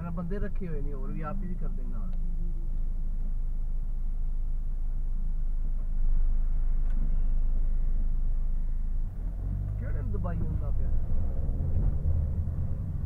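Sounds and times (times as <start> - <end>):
car rumble from inside cabin: 0.0 - 13.0.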